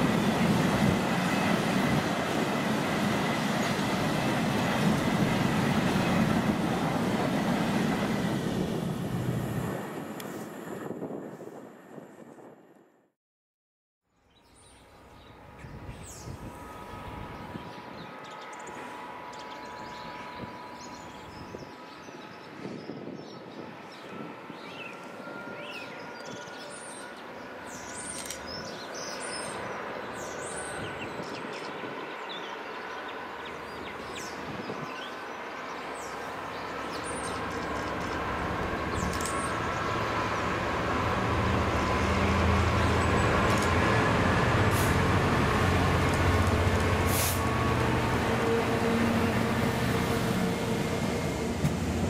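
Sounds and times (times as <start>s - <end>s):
diesel locomotive approaching: 0.0s - 12.9s, 14.4s - 52.0s
birds chirping: 23.2s - 44.2s.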